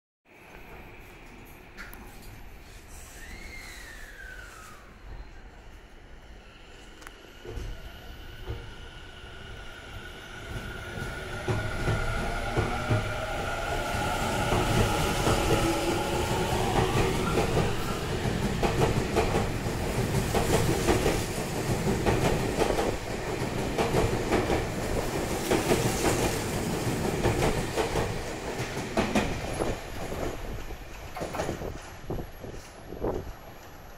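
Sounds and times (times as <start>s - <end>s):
train wheels clattering over rail joints: 25.3s - 32.2s.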